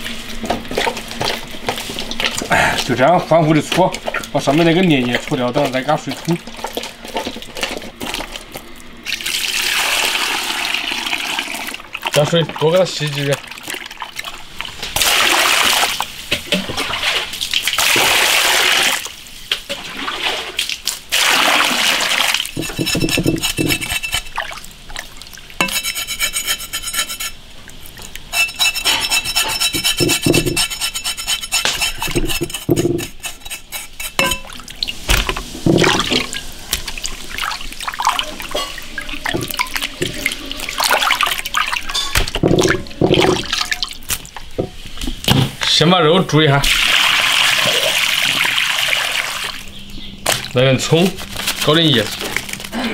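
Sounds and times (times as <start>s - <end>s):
water pouring and splashing: 0.0s - 25.8s, 27.5s - 30.8s, 31.4s - 45.4s, 46.4s - 49.7s, 50.3s - 52.8s
knocks and handling noises: 22.6s - 24.3s, 28.9s - 30.8s, 31.5s - 34.5s
cleaver scraping pork skin: 22.6s - 24.4s, 25.6s - 27.4s, 28.3s - 34.2s.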